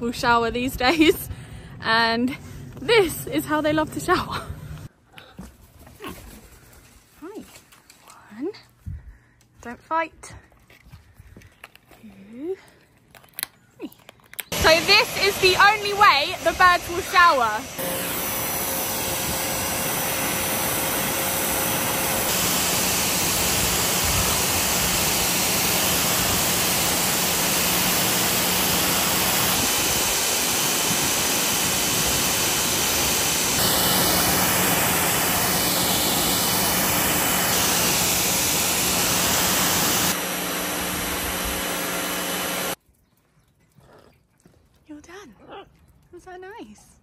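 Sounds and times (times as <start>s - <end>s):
hose spraying water: 14.5s - 42.8s.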